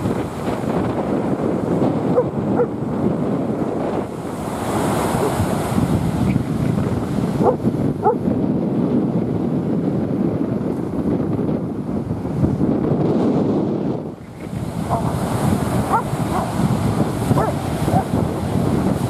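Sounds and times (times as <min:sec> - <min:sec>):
surf breaking on beach: 0:00.0 - 0:19.0
wind buffeting microphone: 0:00.0 - 0:19.0.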